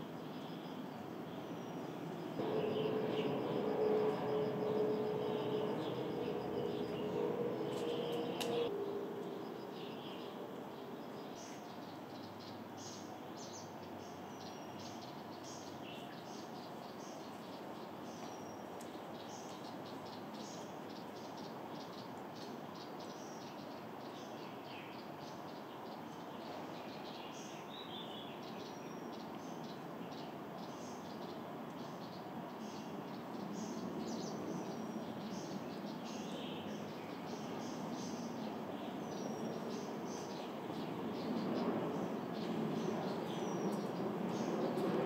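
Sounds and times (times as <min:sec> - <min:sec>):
steady low hum: 0:01.6 - 0:11.7.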